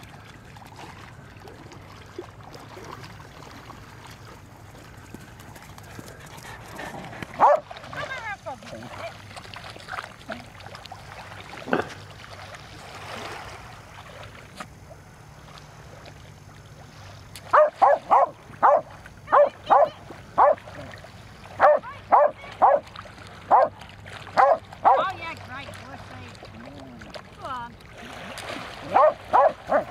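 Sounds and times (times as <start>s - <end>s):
dog barking: 7.4s - 7.7s, 17.5s - 20.6s, 21.6s - 22.8s, 23.5s - 23.8s, 24.4s - 25.1s, 28.8s - 29.9s.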